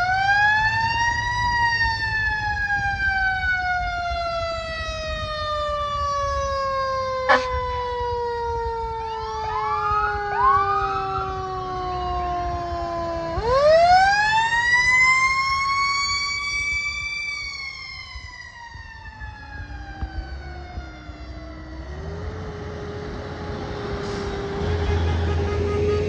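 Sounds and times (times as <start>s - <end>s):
diesel truck engine rumble: 0.0s - 26.0s
fire truck siren winding: 0.0s - 26.0s
steady low siren tone: 0.0s - 26.0s.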